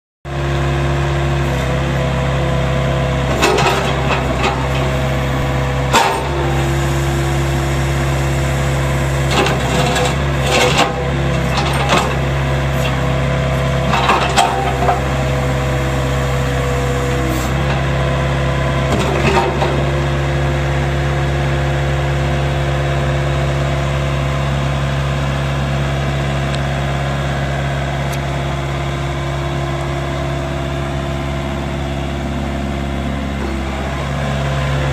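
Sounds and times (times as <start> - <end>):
diesel engine running: 0.3 - 34.9
hydraulic whine: 1.4 - 22.6.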